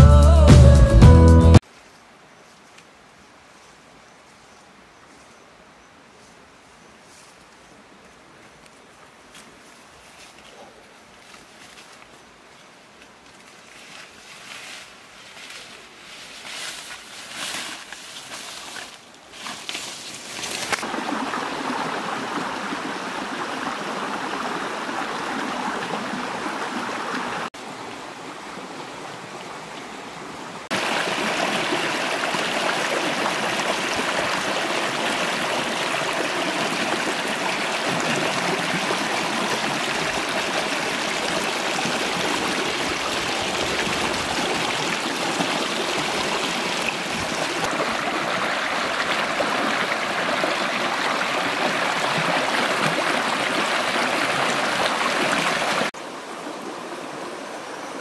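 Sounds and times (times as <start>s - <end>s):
footsteps through grass: 8.4s - 20.9s
stream running over rocks: 17.4s - 58.0s.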